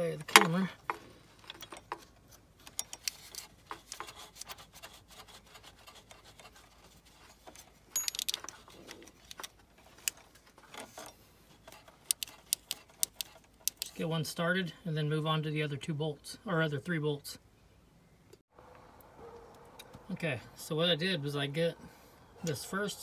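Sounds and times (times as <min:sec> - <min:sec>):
metal tools clicking and scraping: 0:00.3 - 0:04.0, 0:07.2 - 0:14.0
metal rattling: 0:07.9 - 0:08.9.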